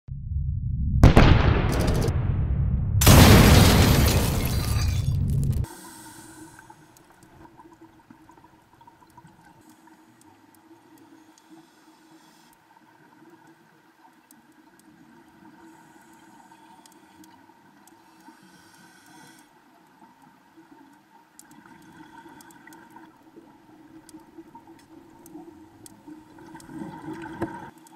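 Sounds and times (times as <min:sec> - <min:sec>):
steady low underwater hum: 0:05.2 - 0:27.9
hiss: 0:18.1 - 0:19.5.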